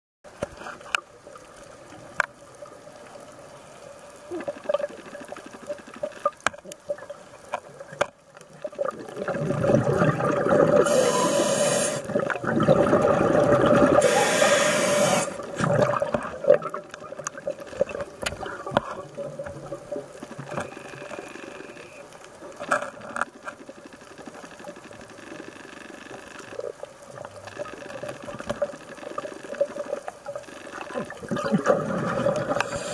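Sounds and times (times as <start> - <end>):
gurgling exhaled bubbles: 8.6 - 20.6, 27.5 - 32.9
regulator hissing: 10.8 - 12.1, 13.9 - 15.5.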